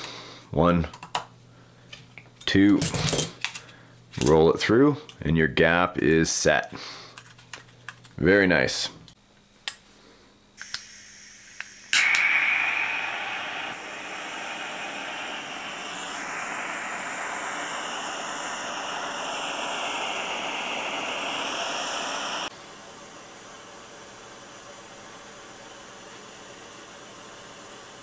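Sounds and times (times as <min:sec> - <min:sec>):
igniter click: 0:10.6 - 0:13.6
gas flame hissing: 0:10.6 - 0:28.0.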